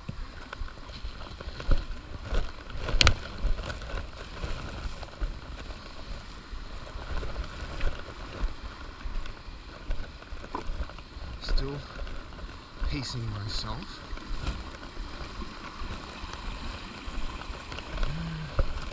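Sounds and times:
footsteps on rocky trail: 0.0s - 18.9s
camera handling rumble: 0.5s - 5.8s.

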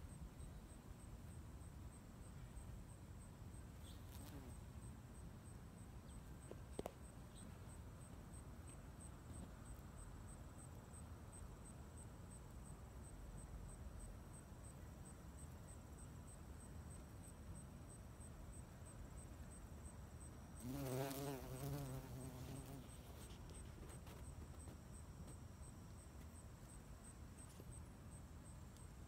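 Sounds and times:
faint background hiss: 0.0s - 29.0s
bumblebee buzzing: 20.6s - 23.2s.

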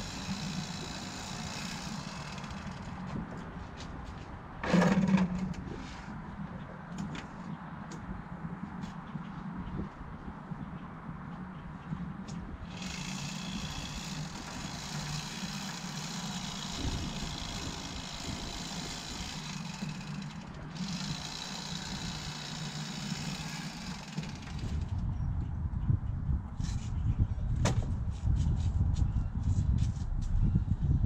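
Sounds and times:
engine running low: 11.4s - 25.2s.

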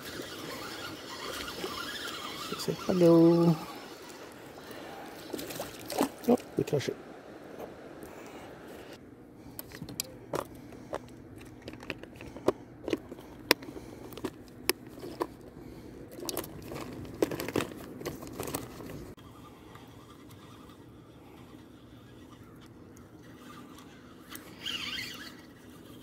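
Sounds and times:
bag rustling and scraping: 16.1s - 19.2s.

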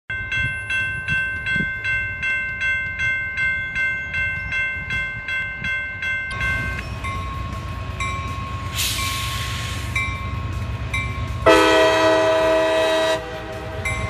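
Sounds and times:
railroad crossing bell ringing: 0.1s - 14.0s.

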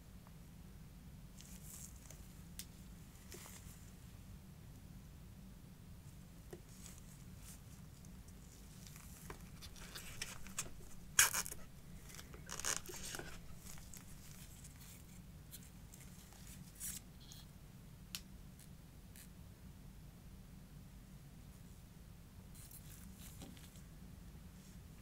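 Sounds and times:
packaging rustling and tapping: 9.0s - 14.6s.

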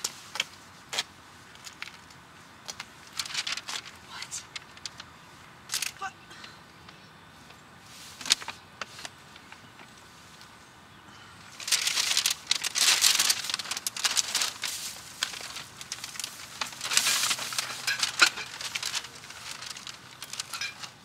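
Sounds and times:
grocery bags rustling: 2.8s - 5.0s, 11.5s - 21.0s.

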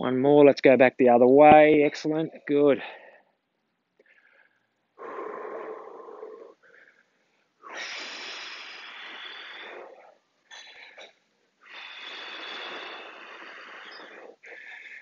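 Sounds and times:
man breathing heavily: 2.8s - 3.4s, 4.0s - 15.0s.

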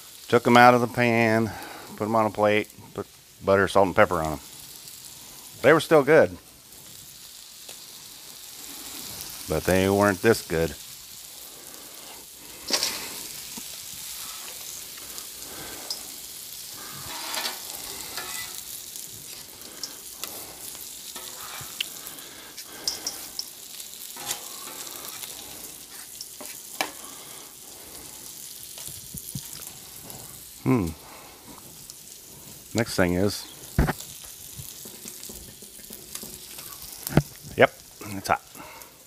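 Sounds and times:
steak sizzling on griddle: 0.0s - 39.0s
metal spatulas scraping griddle: 12.1s - 13.3s, 16.7s - 21.8s, 24.1s - 27.0s.

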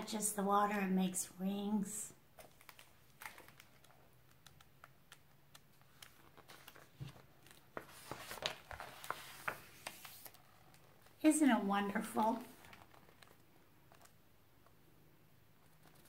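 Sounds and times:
paper rustling: 2.4s - 11.2s, 11.9s - 14.8s, 15.6s - 16.0s.

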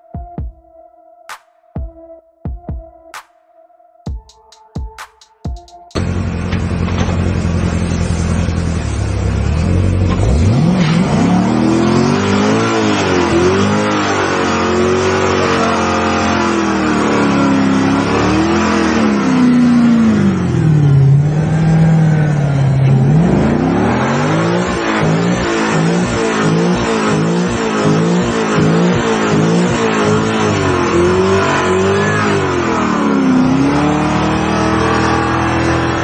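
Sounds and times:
car engine idling: 5.9s - 10.6s, 14.8s - 33.8s
car engine revving: 6.0s - 36.0s.

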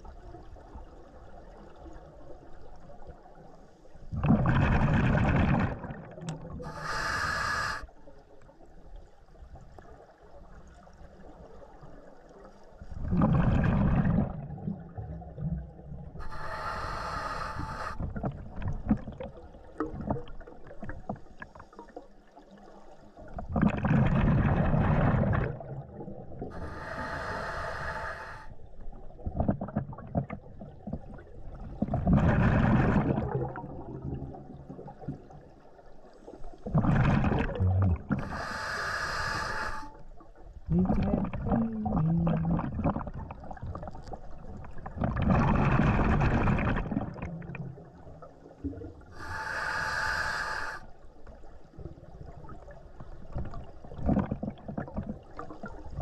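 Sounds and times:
faint crackle and pops: 0.0s - 38.6s, 39.2s - 49.3s, 50.7s - 56.0s
exhaled bubbles rushing: 4.1s - 6.7s, 12.9s - 16.0s, 23.3s - 26.6s, 29.2s - 35.4s, 36.6s - 38.4s, 40.7s - 49.1s
regulator hissing on inhale: 6.6s - 7.9s, 16.2s - 18.2s, 26.5s - 28.6s, 38.2s - 40.0s, 49.1s - 51.0s.

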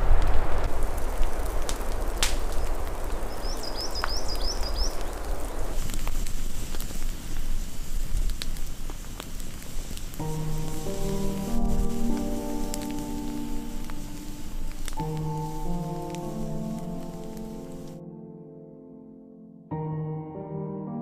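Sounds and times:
campfire crackling and popping: 0.0s - 18.0s
wind rushing through forest: 0.0s - 18.0s
music: 10.2s - 21.0s.

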